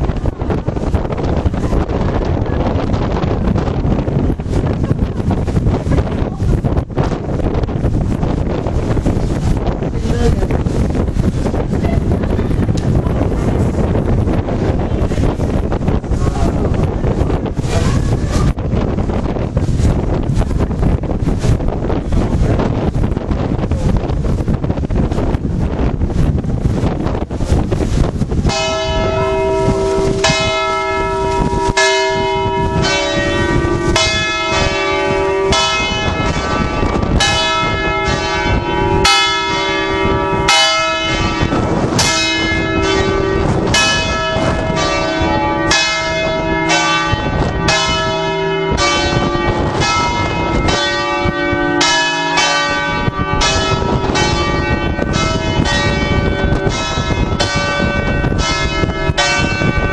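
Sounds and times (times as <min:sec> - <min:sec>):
church bells ringing: 0:28.4 - 0:59.9.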